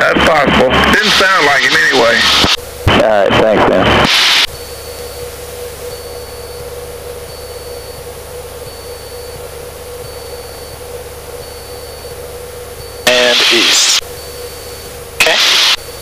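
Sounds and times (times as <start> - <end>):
aircraft engine droning: 0.0 - 16.0
faint high beep: 4.5 - 16.0.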